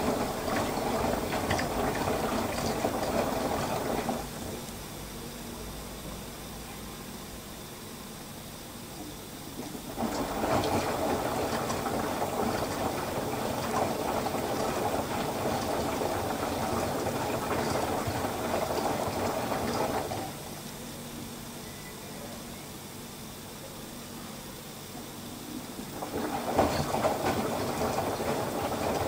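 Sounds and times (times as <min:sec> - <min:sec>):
water sloshing in washer drum: 0:00.0 - 0:04.8, 0:09.5 - 0:20.7, 0:25.3 - 0:29.0.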